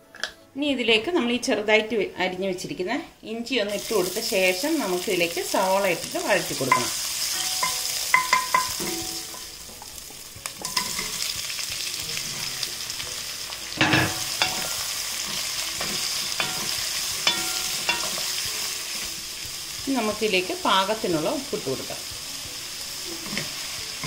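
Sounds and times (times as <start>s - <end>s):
spices sizzling in hot oil: 3.7s - 24.0s.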